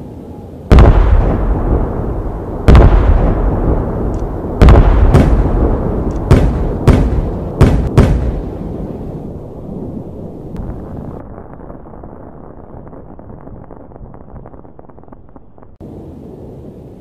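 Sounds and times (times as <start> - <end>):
firework shells bursting: 2.6 - 8.6.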